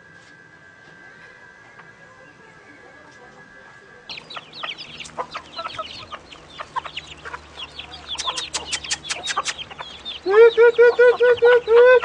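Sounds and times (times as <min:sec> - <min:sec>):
chickens clucking: 0:04.1 - 0:12.0.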